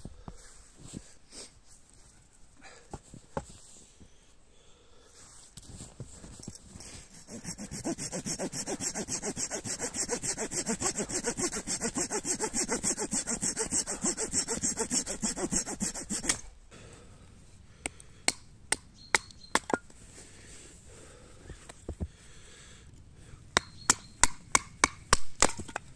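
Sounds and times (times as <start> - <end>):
hand saw cutting wood: 7.1 - 16.5.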